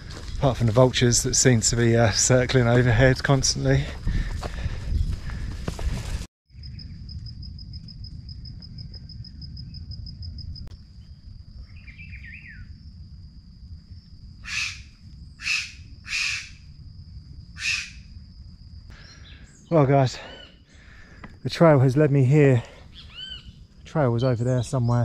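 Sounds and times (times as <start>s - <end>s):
loud harsh bird calls: 14.4s - 16.6s, 17.6s - 18.1s, 19.0s - 21.1s, 22.9s - 23.6s.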